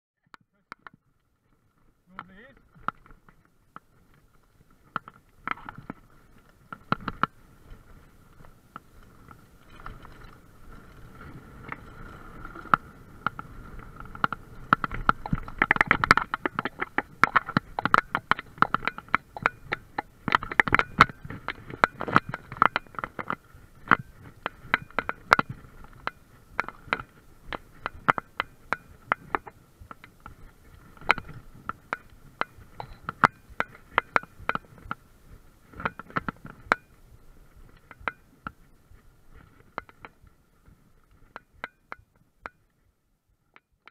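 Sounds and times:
bike frame rattling: 0:02.2 - 0:37.0.

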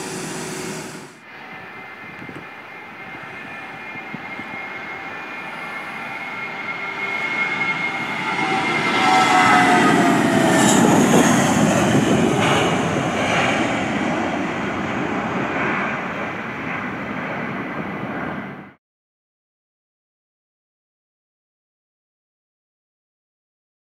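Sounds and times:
jet taking off: 0:00.0 - 0:18.8.

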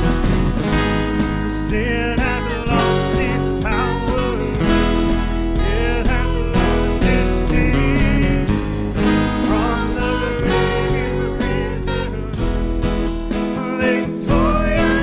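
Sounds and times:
acoustic guitar: 0:00.0 - 0:15.0
voices singing together: 0:09.1 - 0:12.7, 0:13.4 - 0:15.0.

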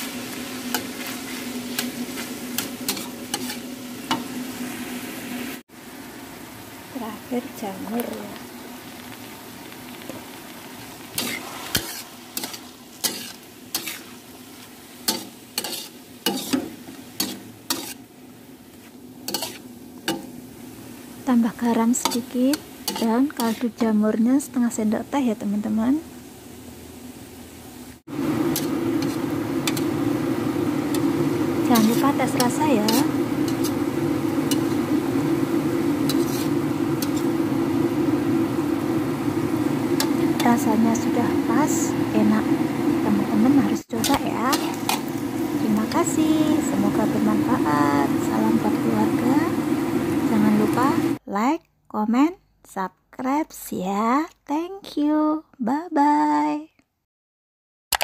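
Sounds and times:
spatula scraping a wok: 0:00.0 - 0:04.8, 0:11.0 - 0:18.1, 0:18.7 - 0:20.4, 0:21.8 - 0:24.0, 0:28.4 - 0:30.2, 0:30.8 - 0:37.5, 0:39.4 - 0:42.3, 0:43.9 - 0:48.6
vegetables sizzling in a wok: 0:00.0 - 0:51.2.

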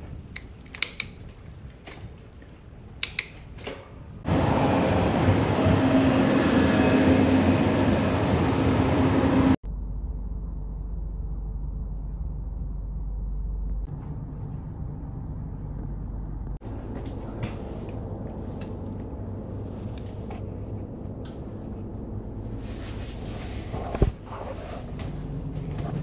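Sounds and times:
low rumble inside train carriage: 0:03.8 - 0:26.0
electric train rumbling and whining: 0:04.1 - 0:26.0.

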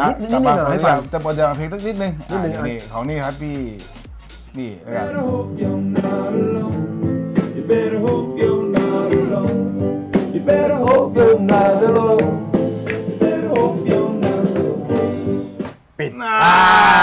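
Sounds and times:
song with singing and guitar: 0:04.9 - 0:15.7.

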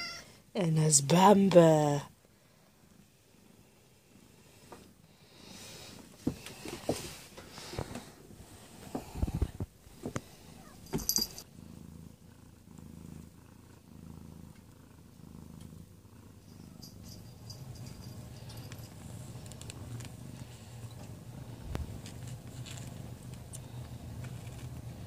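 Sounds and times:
cat purring: 0:01.0 - 0:25.0
sharp knocks and rustles: 0:06.2 - 0:08.1.

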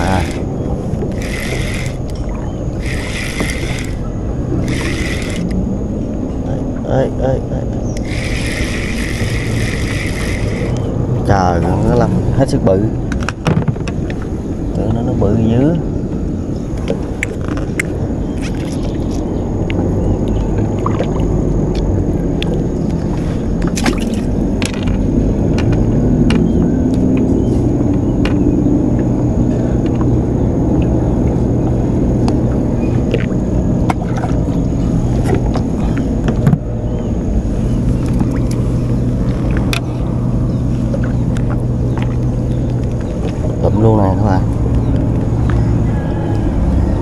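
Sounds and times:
fishing tackle clicking: 0:00.0 - 0:05.6, 0:07.9 - 0:10.9
boat engine running: 0:00.0 - 0:47.0.

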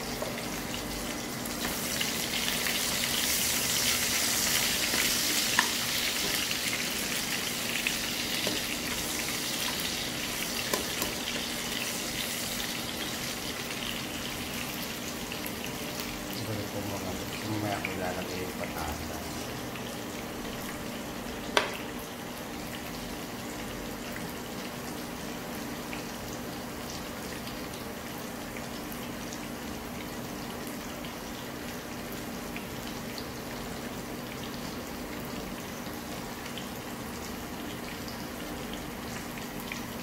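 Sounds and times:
sizzling in oil: 0:00.0 - 0:40.0.

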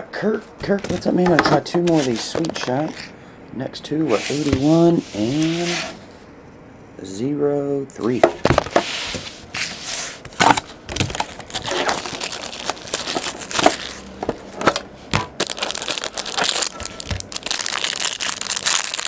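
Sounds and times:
foil wrapper crinkling: 0:10.3 - 0:14.2, 0:15.4 - 0:19.0.

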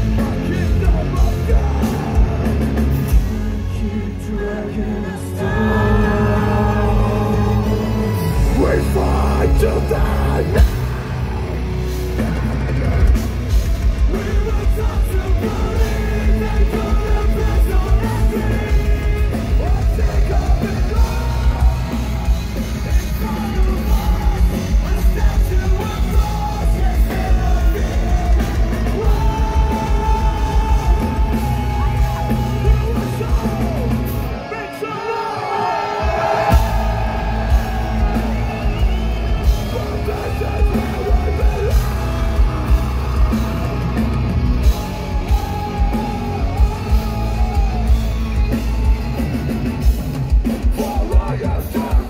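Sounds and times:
metal band playing: 0:00.0 - 0:52.0
screamed vocals: 0:05.1 - 0:11.6, 0:29.0 - 0:44.0.

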